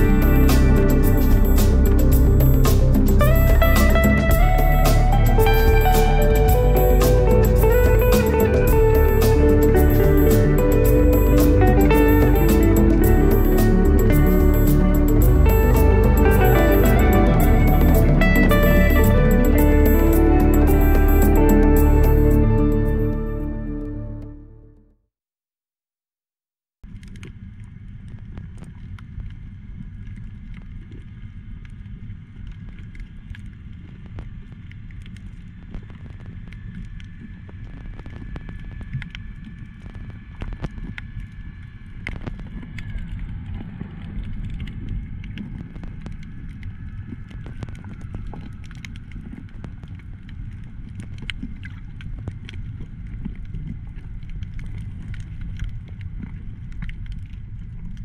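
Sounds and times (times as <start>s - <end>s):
low underwater rumble: 0.0s - 24.6s, 26.8s - 58.0s
crackling clicks: 26.9s - 58.0s.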